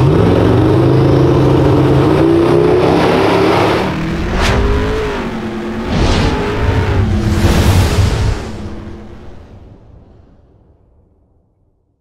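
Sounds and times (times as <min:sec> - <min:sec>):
engine revving: 0:00.0 - 0:09.0
whoosh sound effect: 0:04.2 - 0:05.1.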